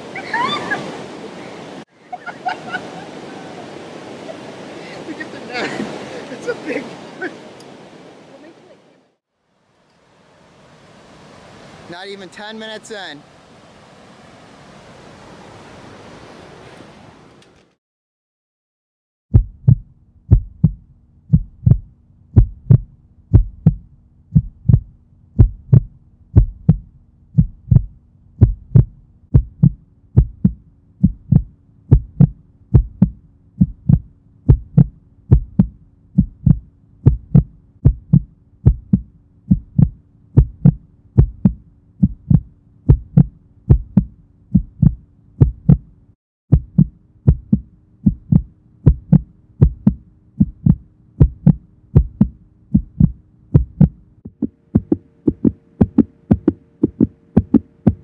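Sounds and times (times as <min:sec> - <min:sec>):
held low notes: 0:19.3 - 0:45.9, 0:46.5 - 0:58.0
kick-drum thuds: 0:19.3 - 0:45.9, 0:46.5 - 0:58.0.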